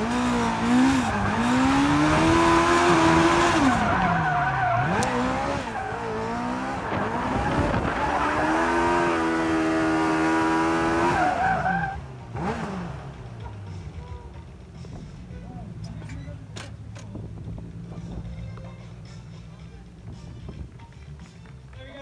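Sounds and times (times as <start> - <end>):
car engine revving hard: 0.0 - 13.2
tyres squealing on tarmac: 3.6 - 6.1, 11.1 - 12.0.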